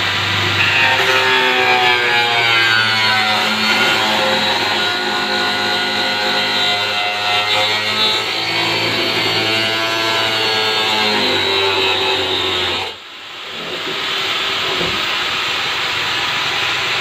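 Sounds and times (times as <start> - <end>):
electric cutting tool cutting plastic: 0.4 - 13.0.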